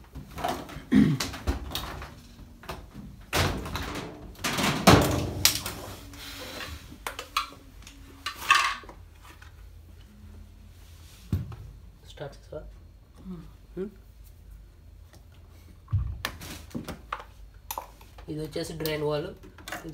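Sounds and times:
washing machine cabinet thumps: 0:03.3 - 0:05.5.

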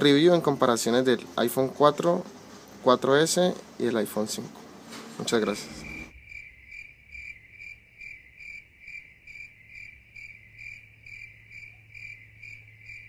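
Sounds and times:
faint low hum: 0:00.0 - 0:13.0
insect chirping: 0:05.2 - 0:13.0.

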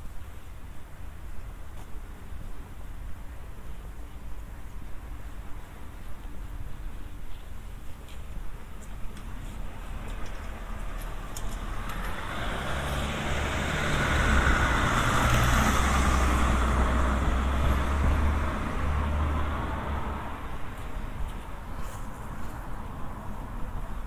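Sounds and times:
vehicle driving past: 0:10.4 - 0:20.5.

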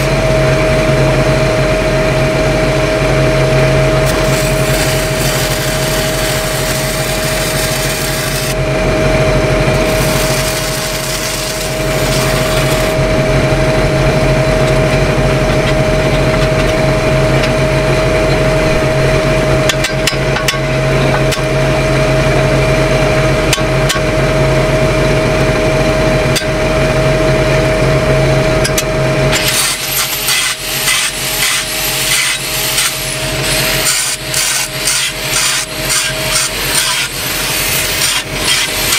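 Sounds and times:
welding arc sizzling: 0:03.8 - 0:08.8, 0:09.6 - 0:14.7, 0:28.7 - 0:38.9
scraping strokes on metal joint: 0:29.4 - 0:38.9.

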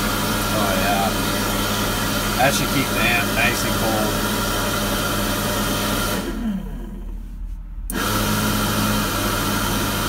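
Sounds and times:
cooling fan blowing: 0:00.0 - 0:04.3.

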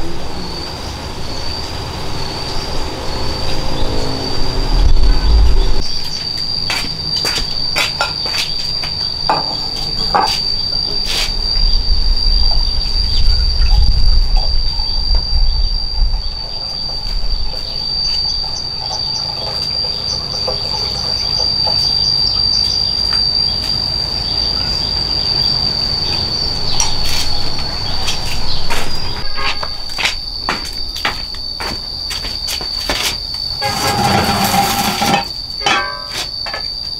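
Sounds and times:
insects chirring: 0:00.0 - 0:36.9
low rumble: 0:03.9 - 0:06.0.

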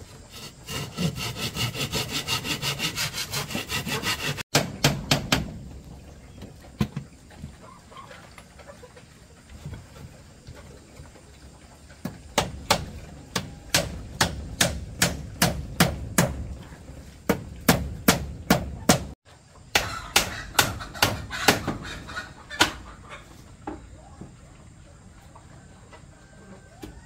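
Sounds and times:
chickens clucking: 0:05.8 - 0:13.7, 0:18.7 - 0:27.0.

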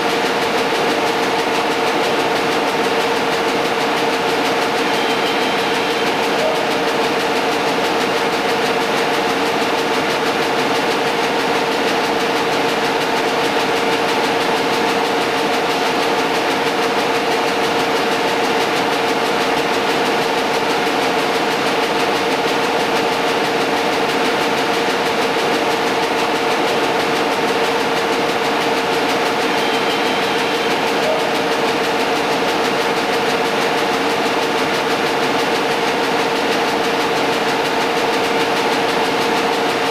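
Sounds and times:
two-tone drone: 0:04.7 - 0:07.4, 0:29.4 - 0:31.7.

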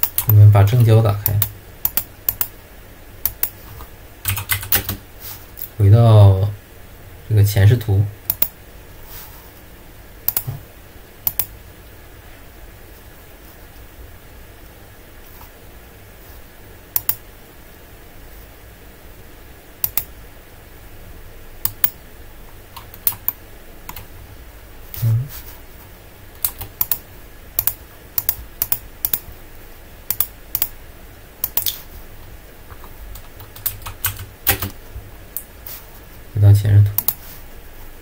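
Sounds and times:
low steady hum: 0:00.0 - 0:38.0
mouse and keyboard clicks: 0:11.3 - 0:11.5, 0:19.8 - 0:20.1, 0:26.4 - 0:27.0, 0:30.1 - 0:30.7, 0:31.4 - 0:31.8, 0:37.0 - 0:37.2.

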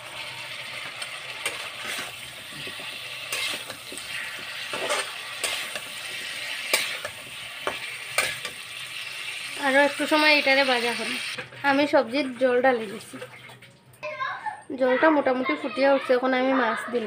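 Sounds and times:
vegetables sizzling in a pan: 0:00.0 - 0:13.2
metal spatula scraping a pan: 0:00.6 - 0:09.5.

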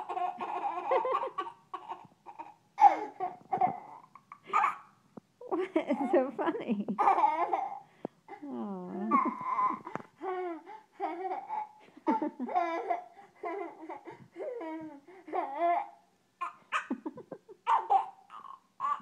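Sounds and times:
boy laughing and babbling: 0:07.0 - 0:11.8.

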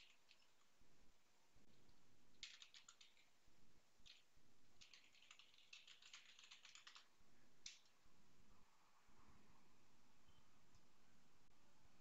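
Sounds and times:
keyboard typing: 0:00.0 - 0:00.7, 0:01.7 - 0:03.4, 0:04.0 - 0:08.0.

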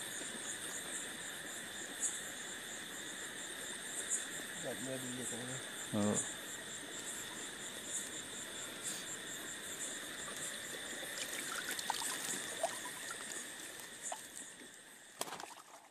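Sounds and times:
crickets chirping: 0:00.0 - 0:15.9
water trickling and dripping: 0:09.7 - 0:15.9
small splashes: 0:10.2 - 0:15.9.

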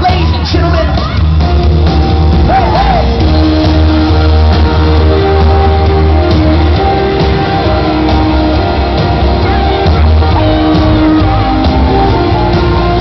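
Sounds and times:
crowd screaming: 0:00.0 - 0:13.0
pop-rock band playing live: 0:00.0 - 0:13.0.

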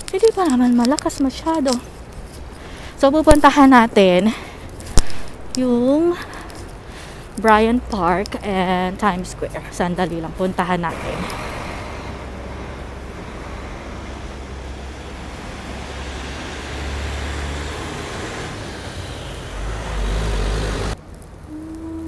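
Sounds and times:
passing vehicles rushing: 0:07.8 - 0:21.2.

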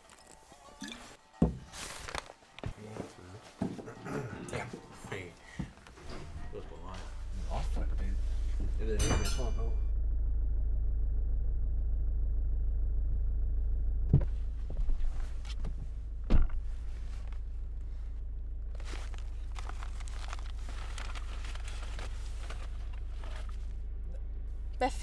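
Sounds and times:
paper bag rustling: 0:00.0 - 0:03.7, 0:18.7 - 0:23.7
steady low rumble: 0:06.5 - 0:25.0.

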